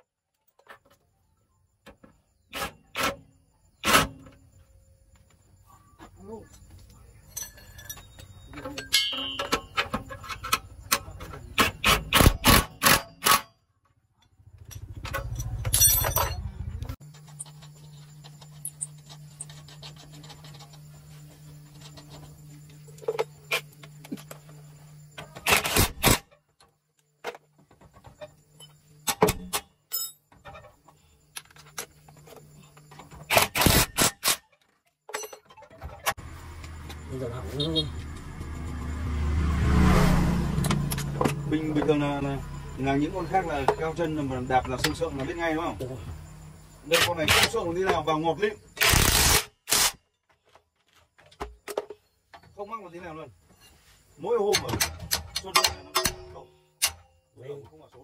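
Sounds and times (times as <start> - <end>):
rapid metal knocks and clanks: 54.5 - 57.1.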